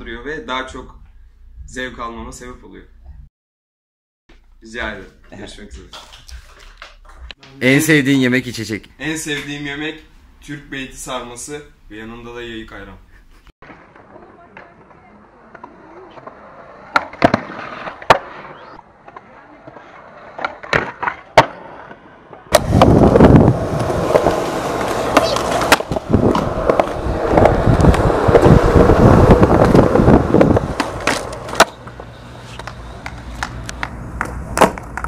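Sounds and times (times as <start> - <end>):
skateboard wheels rolling on concrete: 13.6 - 35.0
skateboard clacks: 22.5 - 35.0.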